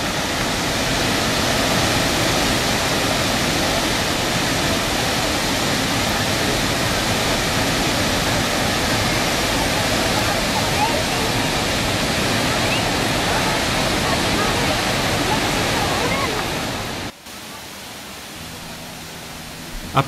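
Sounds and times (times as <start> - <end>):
waterfall rushing into a pool: 0.0 - 20.0.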